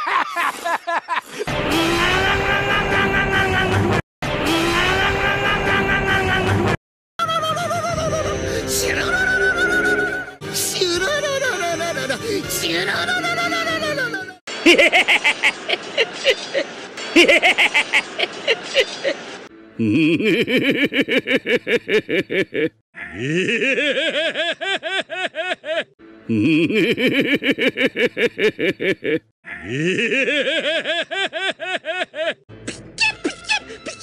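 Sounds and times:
rhythmic fufufu laugh: 0:14.5 - 0:34.0.

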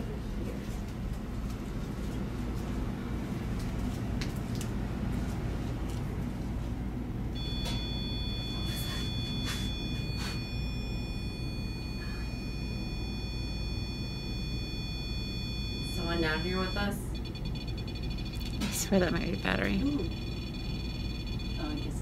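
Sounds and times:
low hum: 0:06.6 - 0:22.0
high-pitched electronic whine: 0:07.4 - 0:22.0.

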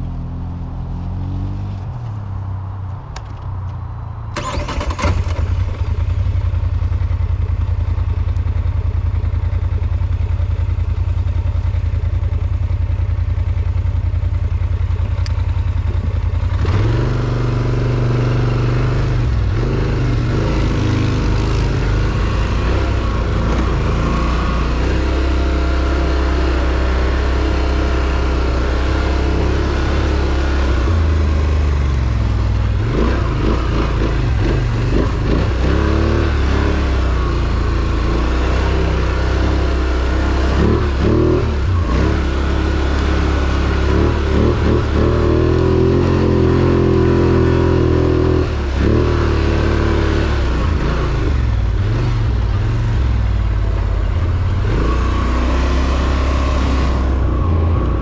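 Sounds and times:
atv engine idling and revving: 0:00.0 - 0:58.0.

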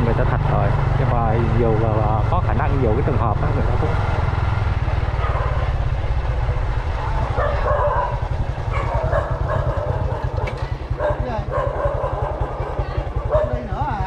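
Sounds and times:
motorbike engine rumbling: 0:00.0 - 0:14.0
dog barking: 0:05.0 - 0:05.8, 0:07.1 - 0:13.8.

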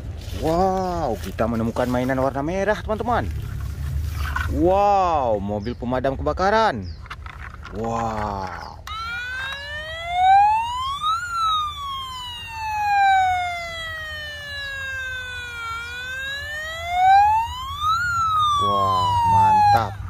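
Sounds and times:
toy siren wailing: 0:08.2 - 0:20.0.

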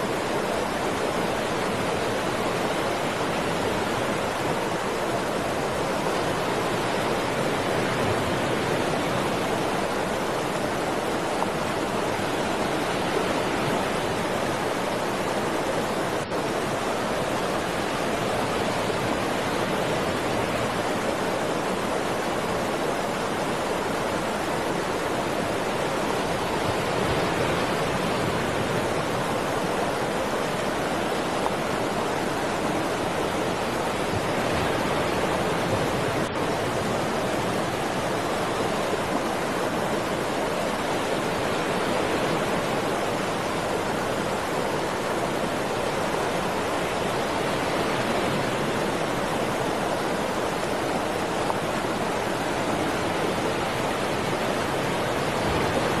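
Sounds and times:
water rushing over rocks: 0:00.0 - 0:56.0.

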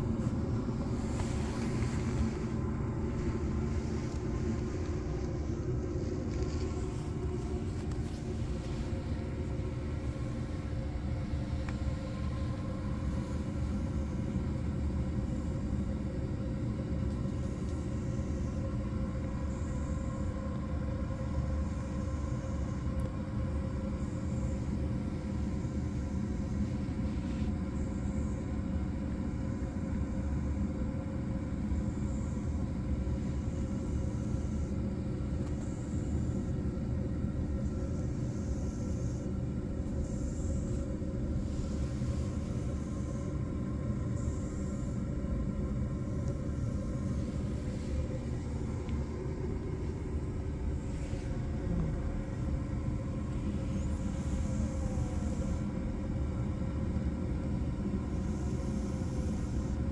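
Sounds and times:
constant hum: 0:00.0 - 0:59.9
low mechanical rumble: 0:00.0 - 0:59.9.

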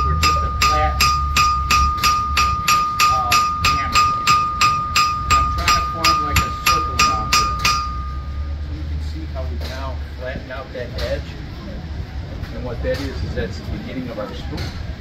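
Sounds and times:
hammer striking anvil: 0:00.0 - 0:08.6.

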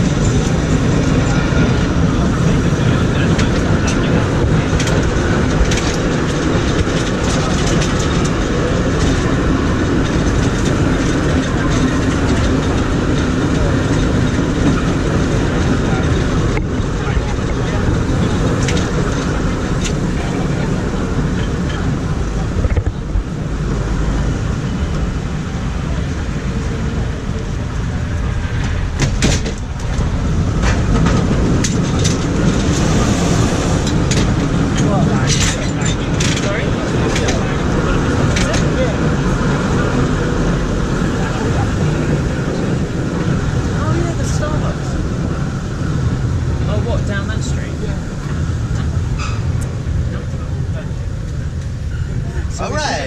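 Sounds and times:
cable car rumbling on rails: 0:00.0 - 0:53.0
clicks and clacks: 0:02.9 - 0:23.3, 0:28.4 - 0:41.8.

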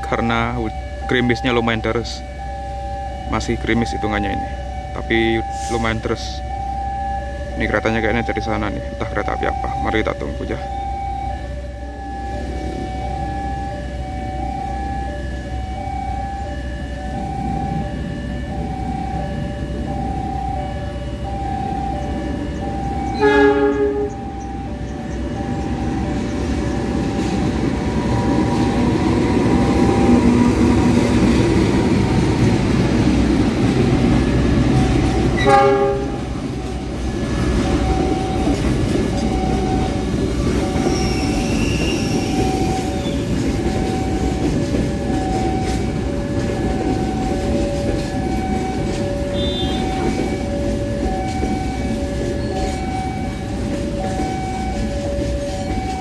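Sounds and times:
crossing warning bell chiming: 0:00.0 - 0:56.0
train rumbling over rails: 0:00.0 - 0:56.0
locomotive horn blast: 0:22.4 - 0:24.8, 0:34.3 - 0:36.5, 0:49.2 - 0:50.4.

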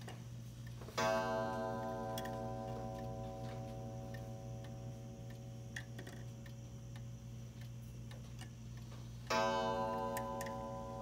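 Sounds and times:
clock striking ringing note: 0:01.0 - 0:05.2, 0:09.3 - 0:11.0.

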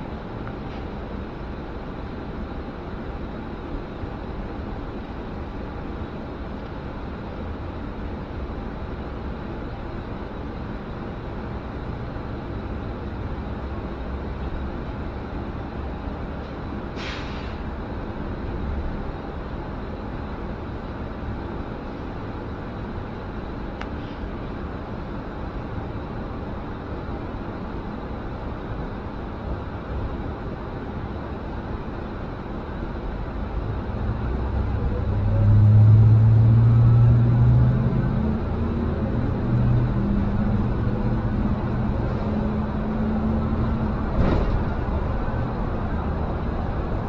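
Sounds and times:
bus engine rumble: 0:00.0 - 0:47.0
compressed air hiss: 0:17.0 - 0:17.6.

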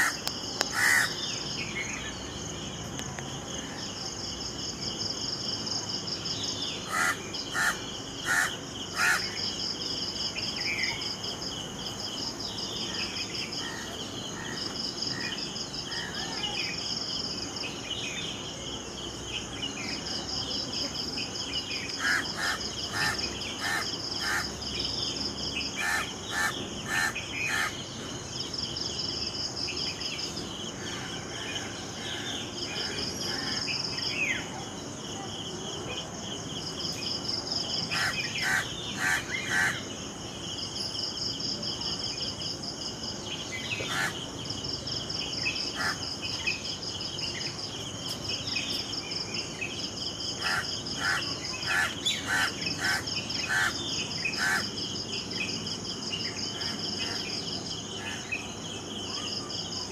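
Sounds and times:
crow cawing: 0:00.0 - 0:01.2, 0:06.9 - 0:09.3, 0:25.8 - 0:27.7, 0:37.9 - 0:39.8, 0:50.4 - 0:53.8, 0:54.4 - 0:54.7
insects trilling: 0:00.0 - 0:59.9.

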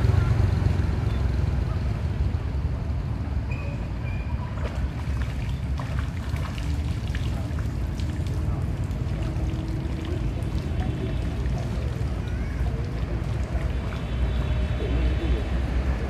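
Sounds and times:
floodwater flowing and trickling: 0:03.9 - 0:16.0
water drips and splashes: 0:04.4 - 0:16.0.

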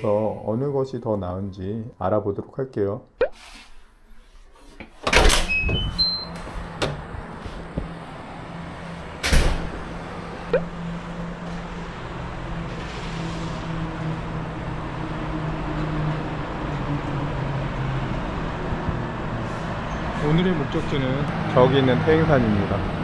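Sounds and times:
road traffic hum: 0:05.0 - 0:23.0
wind noise: 0:05.5 - 0:08.0
rising beeps sound effect: 0:10.5 - 0:10.7.

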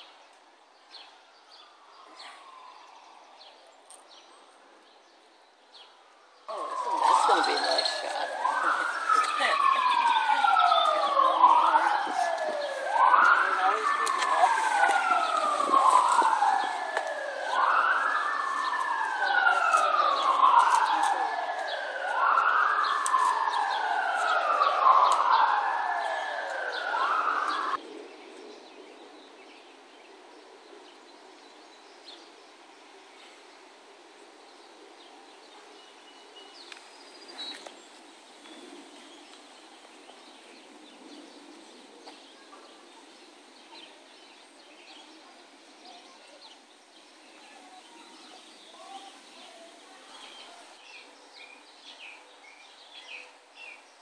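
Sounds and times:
bird chirps: 0:00.8 - 0:30.1
emergency vehicle siren wailing: 0:06.5 - 0:27.8.

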